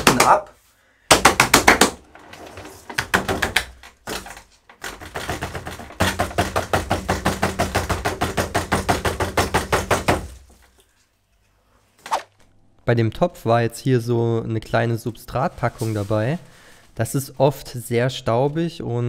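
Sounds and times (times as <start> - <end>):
rapid knocking on plant pot: 4.8 - 10.5.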